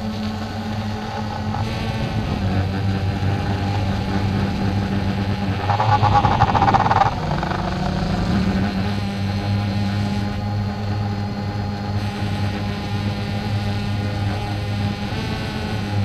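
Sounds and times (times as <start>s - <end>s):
drone propellers humming: 0.0s - 16.0s.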